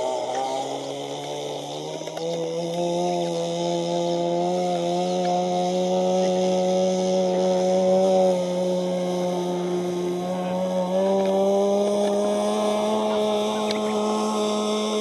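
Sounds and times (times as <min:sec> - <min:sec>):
model airplane engine buzzing: 0:00.0 - 0:15.0.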